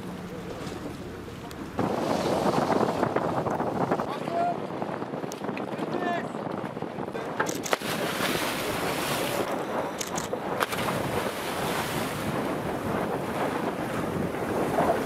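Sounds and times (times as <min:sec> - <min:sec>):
wind buffeting microphone: 0:00.0 - 0:15.0
sea water splashing: 0:07.3 - 0:15.0.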